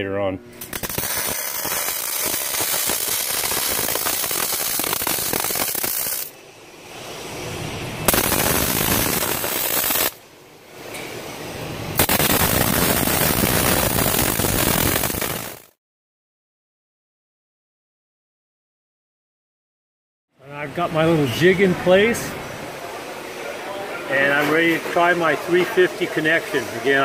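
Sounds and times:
welding arc crackling: 0.6s - 6.4s, 8.0s - 10.2s, 11.9s - 15.8s.

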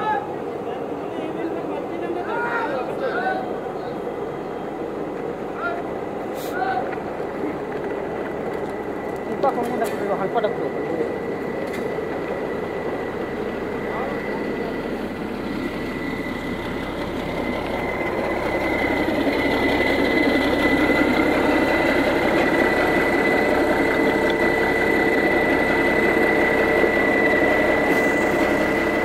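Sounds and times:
engine idling: 1.9s - 29.0s
thin high whine: 8.8s - 29.0s.

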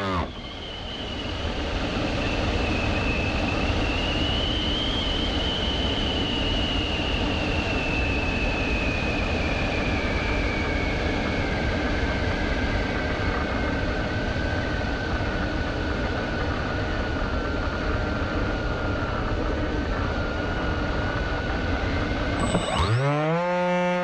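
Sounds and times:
drone motors whining: 0.0s - 0.5s, 22.3s - 24.0s.

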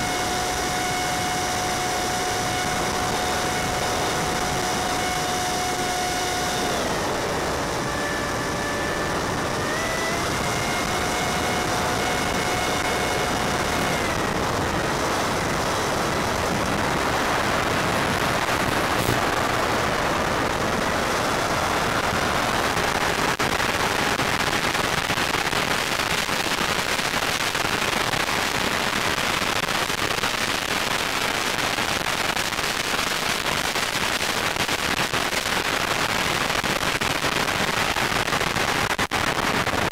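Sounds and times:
electric motor whining: 0.0s - 19.8s
hiss with crackling static: 18.2s - 20.8s, 22.4s - 39.9s.

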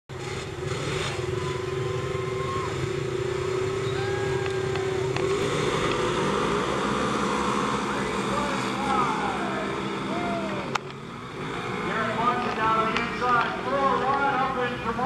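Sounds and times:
engines idling together: 0.1s - 15.0s.

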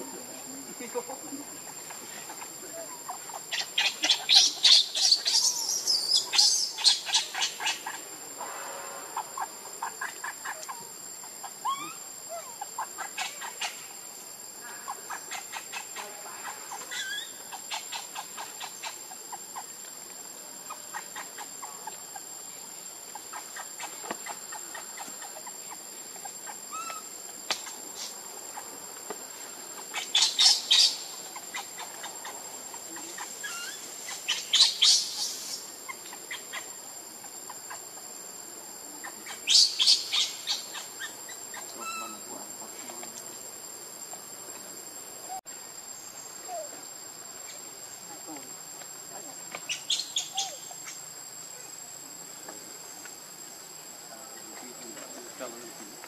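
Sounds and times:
high insect drone: 0.0s - 56.0s
rapid high chattering calls: 0.7s - 19.8s, 20.6s - 22.5s, 23.1s - 28.8s, 29.5s - 38.1s, 38.9s - 42.8s, 49.5s - 51.7s
faint chirps and clicks: 10.0s - 10.9s, 26.2s - 28.2s.

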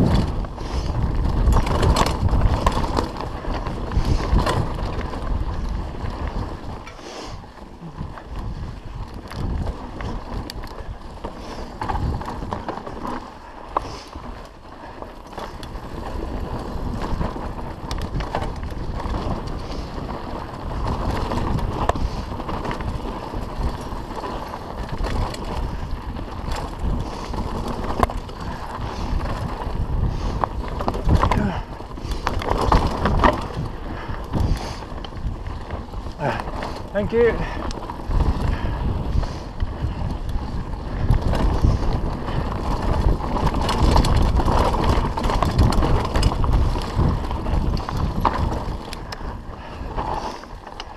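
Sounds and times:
bike rattling: 0.0s - 50.9s
bike tyres rumbling on dirt: 0.0s - 50.9s.

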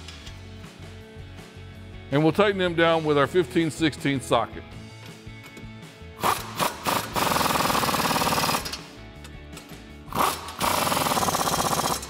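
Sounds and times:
pneumatic impact wrench hammering: 6.2s - 12.0s.

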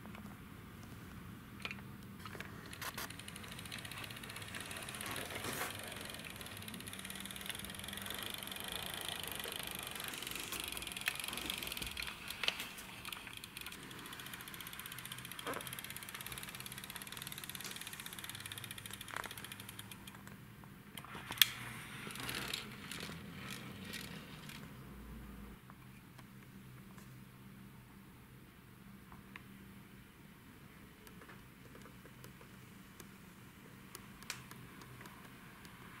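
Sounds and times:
small clicks: 1.6s - 20.4s
toy truck rolling on wooden floor: 2.3s - 20.1s, 21.0s - 24.7s.

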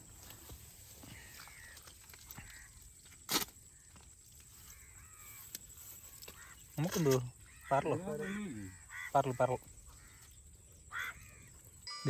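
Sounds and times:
faint distant calls: 3.7s - 12.0s.

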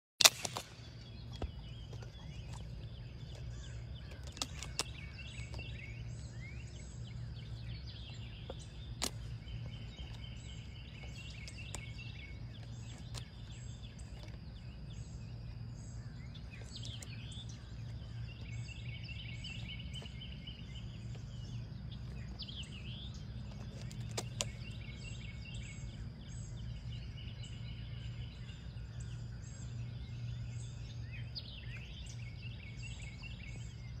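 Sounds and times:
turtle shell cracking: 0.2s - 5.9s, 8.4s - 10.3s
birds singing trills: 0.2s - 34.0s
steady low rumble: 0.2s - 34.0s.

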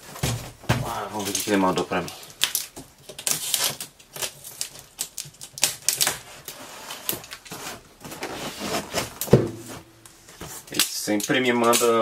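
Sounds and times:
box cutter crackling through tape: 2.4s - 7.6s
cardboard flaps scraping and rustling: 6.0s - 10.8s.

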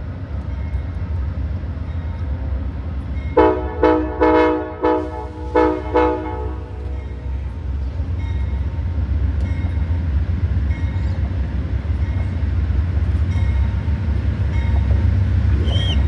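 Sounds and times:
locomotive engine rumbling: 0.0s - 16.0s
locomotive bell ringing: 6.3s - 11.2s, 11.8s - 15.3s.

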